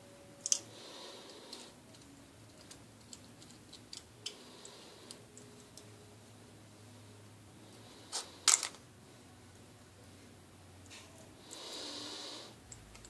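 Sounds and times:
eggshell crackling and clicking: 0.4s - 0.7s, 1.3s - 5.9s.

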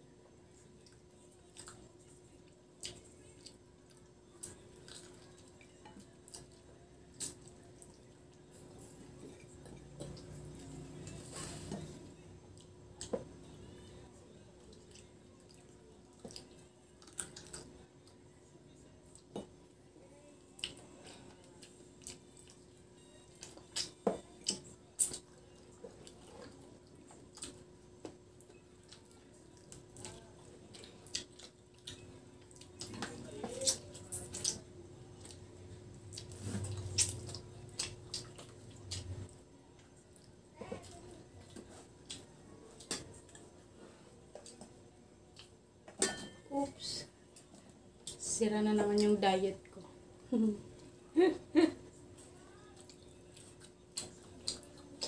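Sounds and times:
faint steady hum: 0.0s - 55.0s
wet chewing smacks and clicks: 36.1s - 39.3s, 52.8s - 55.0s.

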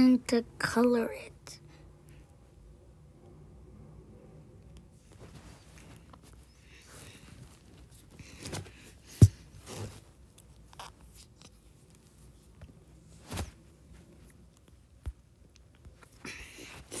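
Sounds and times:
rustling: 5.0s - 17.0s.

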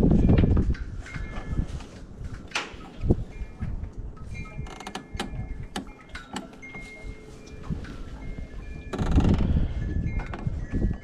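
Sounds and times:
gusty wind buffeting microphone: 0.0s - 6.0s, 7.2s - 11.0s
knocks and clicks: 4.5s - 6.8s.

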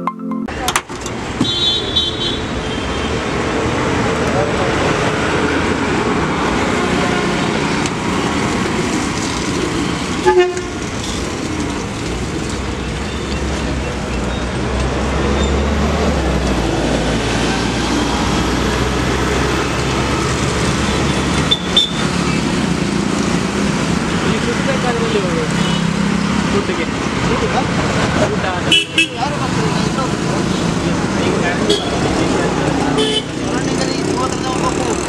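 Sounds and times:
roadside traffic: 0.1s - 35.0s
vehicle horn toot: 1.4s - 3.1s, 10.2s - 10.7s, 28.7s - 29.2s, 31.7s - 31.9s, 33.0s - 33.4s
heavy vehicle passing: 29.4s - 35.0s.

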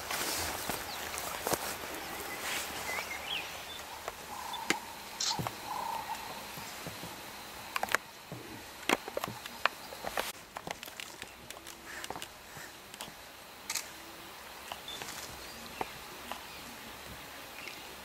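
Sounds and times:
soft animal footfalls: 0.0s - 3.0s
steady outdoor background noise: 0.0s - 18.0s
sharp clicks: 13.7s - 13.9s.

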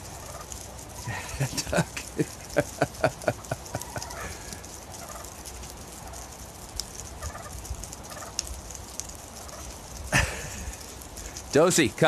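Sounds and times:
ducks quacking: 0.1s - 5.4s.

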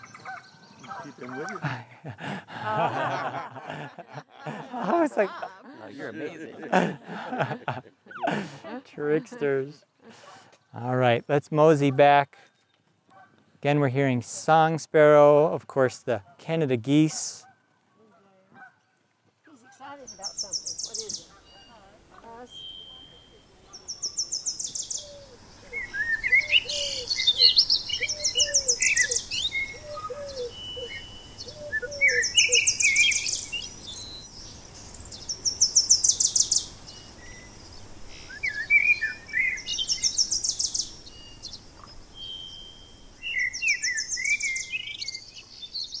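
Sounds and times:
song sparrow singing: 0.0s - 1.7s, 19.8s - 46.0s
distant geese honking: 0.0s - 10.4s
other birdsong: 0.0s - 46.0s.

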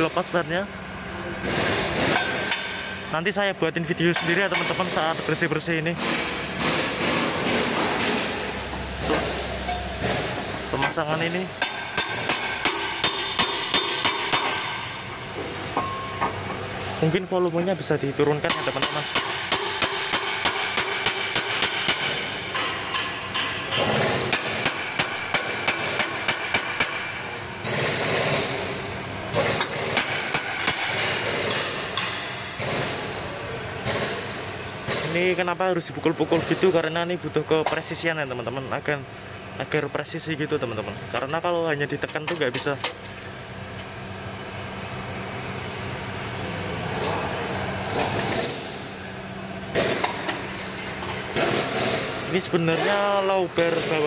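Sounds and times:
steady low hum: 0.0s - 54.0s
hammer striking metal: 11.6s - 14.9s, 15.7s - 16.4s, 18.5s - 27.2s.

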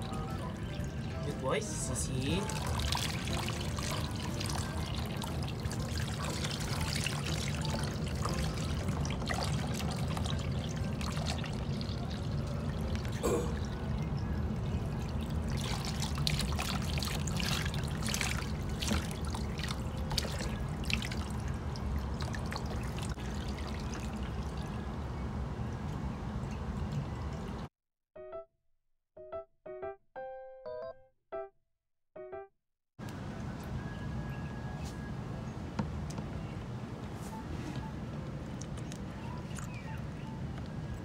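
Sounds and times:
water splashes: 0.0s - 25.2s
water pouring into a basin: 0.2s - 25.2s.

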